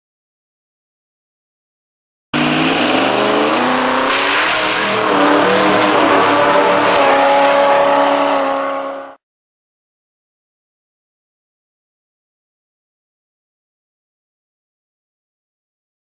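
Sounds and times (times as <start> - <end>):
diesel truck at full throttle: 2.4 - 9.2.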